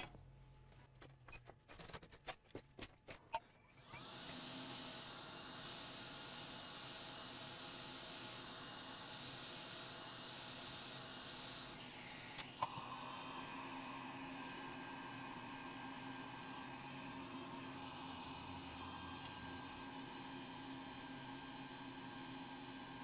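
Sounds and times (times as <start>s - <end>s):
hot air station hissing: 4.3s - 23.0s.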